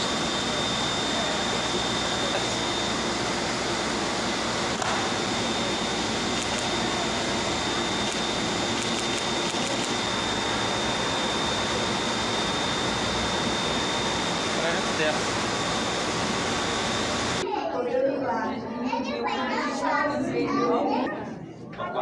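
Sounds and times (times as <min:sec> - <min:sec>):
high-pitched whine: 0:00.0 - 0:17.4
machinery hiss: 0:00.0 - 0:17.4.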